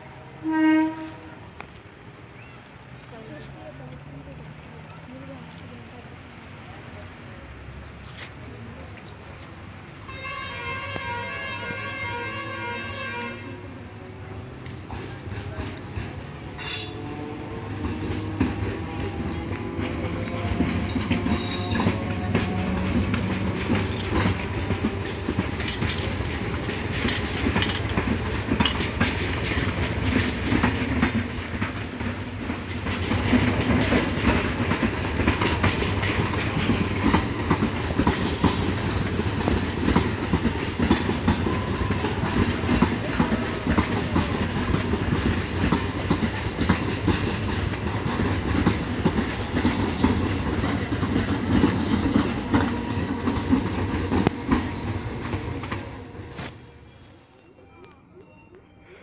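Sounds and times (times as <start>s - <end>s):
train wheels clattering over rail joints: 14.6s - 56.5s.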